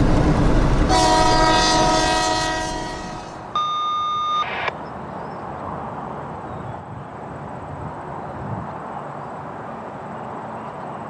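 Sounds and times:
locomotive air horn chord: 0:00.9 - 0:03.5
single-pitch tone: 0:03.5 - 0:04.7.

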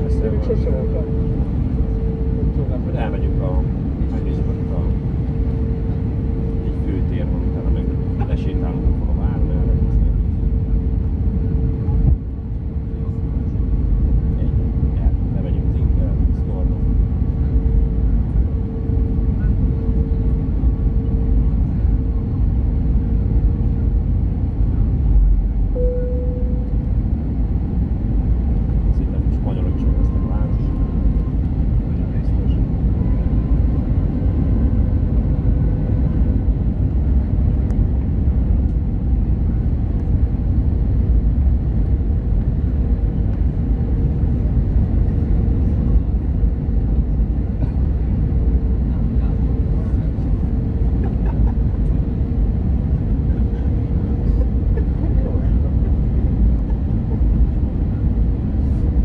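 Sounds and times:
low rumble of engines and airflow: 0:00.0 - 0:59.0
steady hum on one pitch: 0:00.0 - 0:59.0
faint steady hum: 0:17.3 - 0:38.8.

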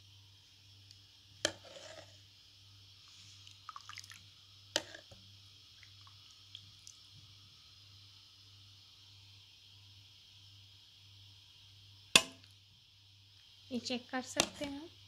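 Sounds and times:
wet drips and splashes: 0:05.8 - 0:07.0.

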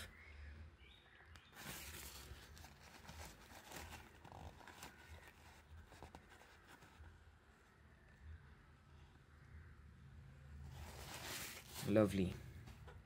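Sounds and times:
paper towel rustling: 0:01.6 - 0:07.0, 0:10.8 - 0:12.3.

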